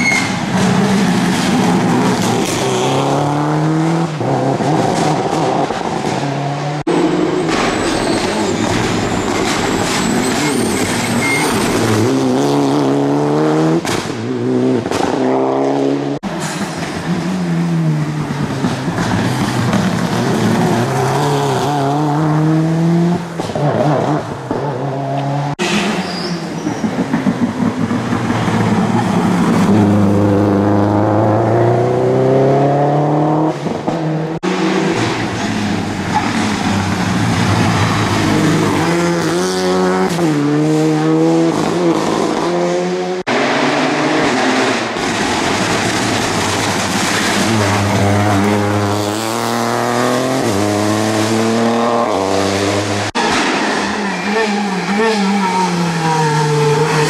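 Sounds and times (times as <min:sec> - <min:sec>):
rally car engines at full throttle: 0:00.0 - 0:57.0.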